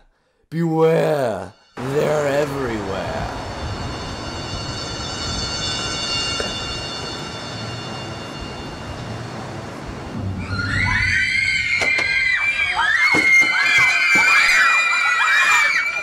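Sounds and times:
background noise: 0.0s - 14.6s
crowd screaming: 10.2s - 16.0s.

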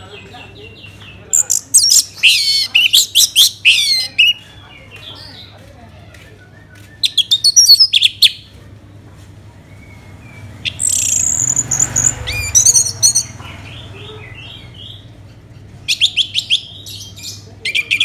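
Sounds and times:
thrush singing: 9.6s - 15.1s.

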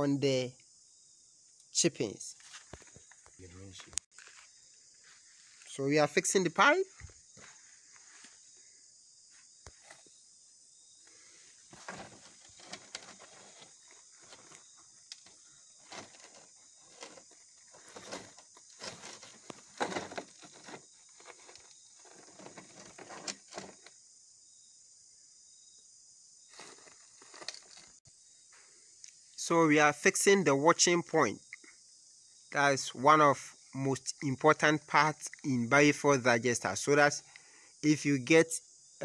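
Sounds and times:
rustles and knocks in gravel: 2.4s - 5.7s, 11.6s - 24.0s, 26.5s - 28.0s.

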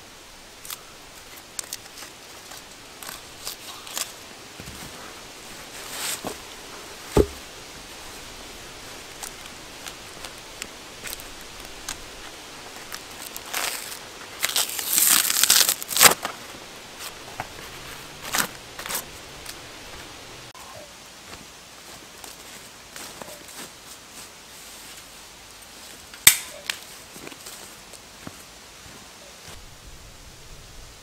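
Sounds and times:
hard knock: 7.2s - 7.4s.

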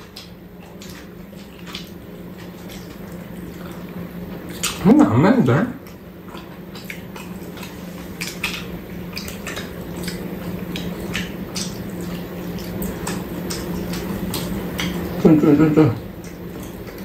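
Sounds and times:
small clicks and smacks: 0.0s - 4.8s, 5.8s - 15.2s, 16.0s - 17.0s
chewing: 0.0s - 5.1s, 5.7s - 17.0s
steady low hum: 0.0s - 17.0s.

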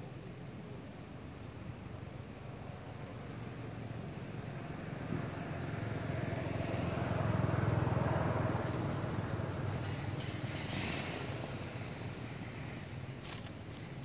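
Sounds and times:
vehicle passing by: 4.4s - 12.1s.

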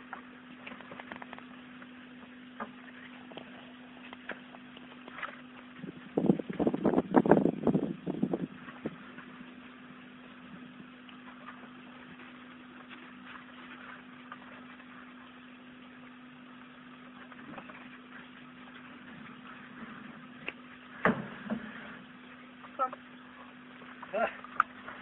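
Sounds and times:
faint ticks and scratches: 0.0s - 6.7s
steady low hum: 0.0s - 25.0s.

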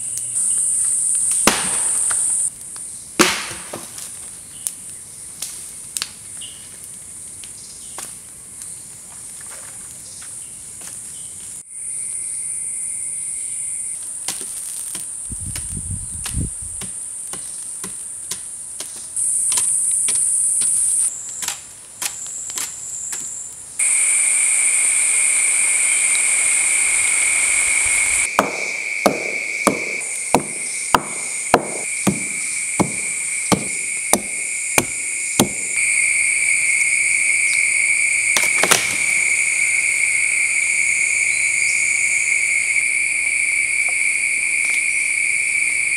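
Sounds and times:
forest insects droning: 0.0s - 45.9s
stone tool knocking on log: 28.4s - 35.7s.

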